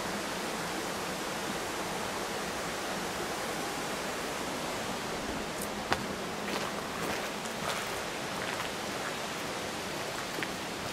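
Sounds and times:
river water rushing: 0.0 - 10.9.

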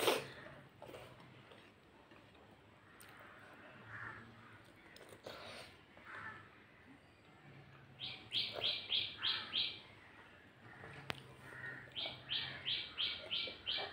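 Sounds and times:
bird chirping: 8.0 - 10.4, 11.6 - 13.9.

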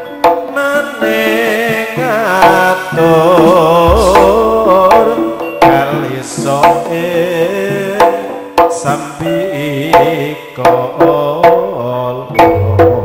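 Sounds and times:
hand-drum strokes: 2.0 - 6.9, 12.4 - 13.0.

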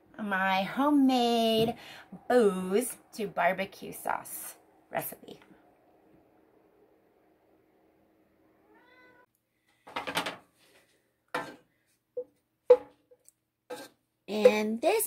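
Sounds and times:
wooden spoon scraping a saucepan: 13.7 - 14.8.

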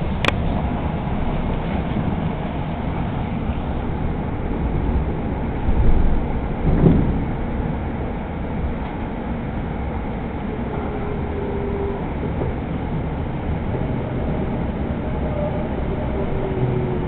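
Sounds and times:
wheels rumbling on rail: 0.0 - 17.0
train car bumps: 5.6 - 8.0.

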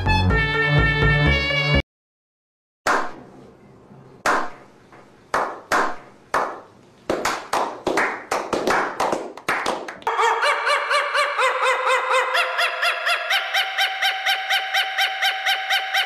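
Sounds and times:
hand clapping: 2.9 - 3.2, 4.2 - 4.6, 5.3 - 10.1.

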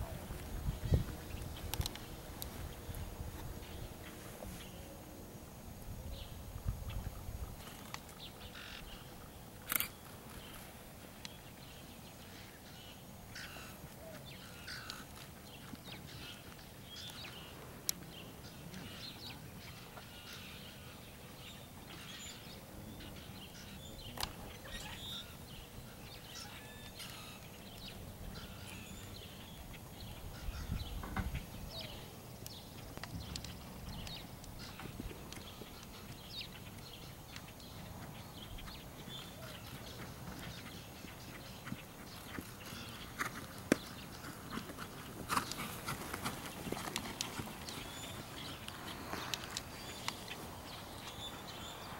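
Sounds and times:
birds chirping: 6.0 - 51.9
horse trotting on sand: 37.9 - 51.5.

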